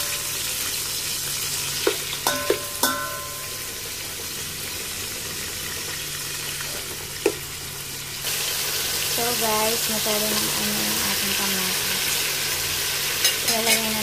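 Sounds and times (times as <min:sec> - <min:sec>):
food sizzling in hot oil: 0:00.0 - 0:14.0
metal turner knocking on pot: 0:01.8 - 0:03.6.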